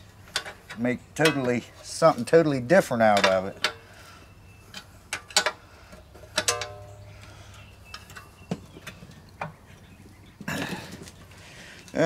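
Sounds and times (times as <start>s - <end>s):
metal parts clicking and knocking: 6.3s - 6.9s.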